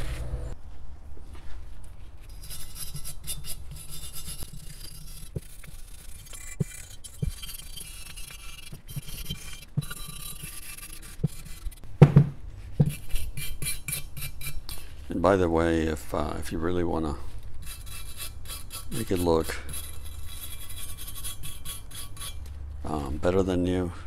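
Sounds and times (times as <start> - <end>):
brush scrubbing metal: 2.3 - 11.8, 12.6 - 14.8, 17.6 - 22.4.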